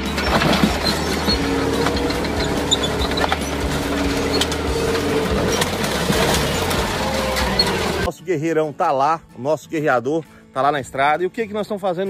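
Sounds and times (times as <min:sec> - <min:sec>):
car crushed with cracks and crunches: 0:00.0 - 0:08.1
tank engine running: 0:00.0 - 0:08.1
tank tracks clattering: 0:00.0 - 0:08.1.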